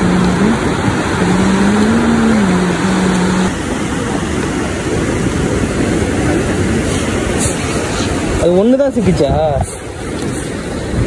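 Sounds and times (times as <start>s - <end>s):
wavering low hum: 0.0s - 8.2s
waves breaking on shore: 0.0s - 11.0s.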